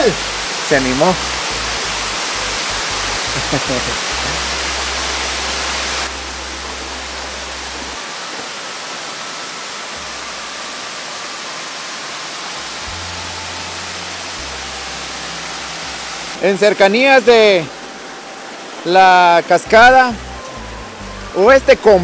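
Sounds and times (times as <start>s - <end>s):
waterfalls pouring into pool: 0.0s - 22.0s
faint background music: 12.5s - 22.0s.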